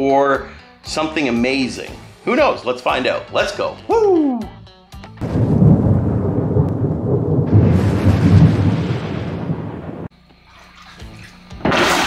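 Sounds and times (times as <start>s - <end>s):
thunder rumble: 5.2s - 10.1s.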